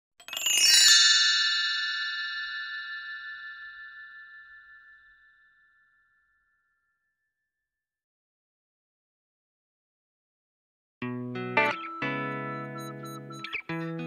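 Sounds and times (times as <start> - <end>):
bell-like chime tones ringing: 0.2 - 7.5, 11.6 - 14.0.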